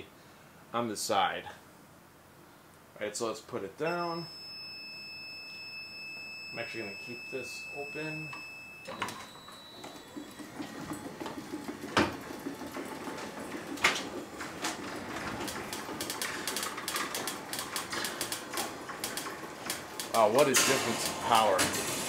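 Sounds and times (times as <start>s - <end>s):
garage door opener running: 8.8s - 22.0s
rattling clicks: 10.9s - 22.0s.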